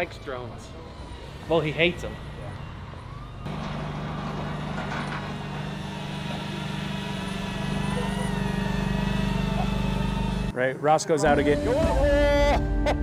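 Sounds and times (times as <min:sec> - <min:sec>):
drone propellers humming: 0:00.7 - 0:10.6.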